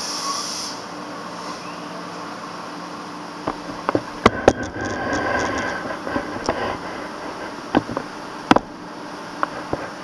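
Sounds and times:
wheels clicking over rail joints: 3.5 - 8.8.

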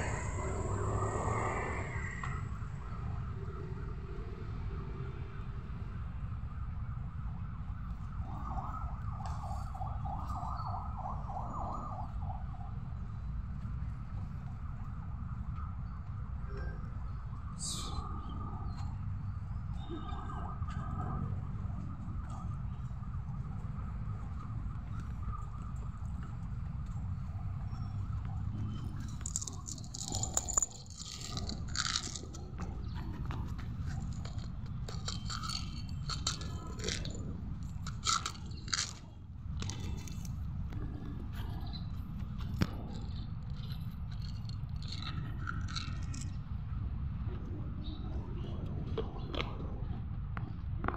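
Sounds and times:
distant emergency siren: 0.0 - 16.1
steady low rumble: 0.0 - 50.9
dry kibble rattling onto paving: 28.7 - 40.3, 42.4 - 46.4.

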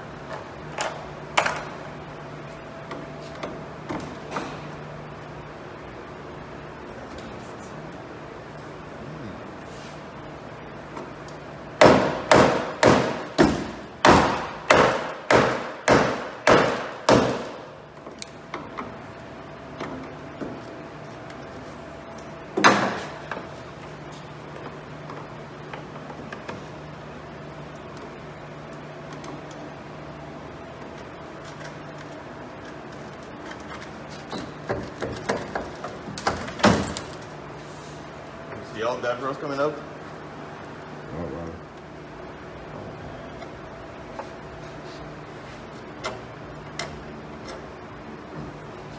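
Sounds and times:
steady low hum: 0.0 - 48.9
hammer strikes on metal: 11.8 - 17.6.

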